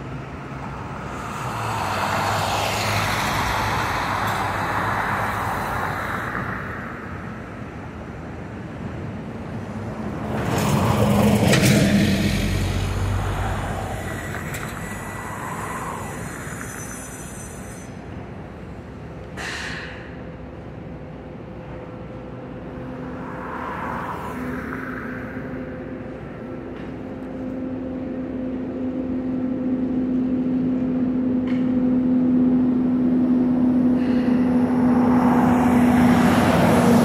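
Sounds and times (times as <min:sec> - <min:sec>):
vehicle passing: 0:00.0 - 0:08.0, 0:09.5 - 0:17.3, 0:21.8 - 0:28.6, 0:32.0 - 0:37.0.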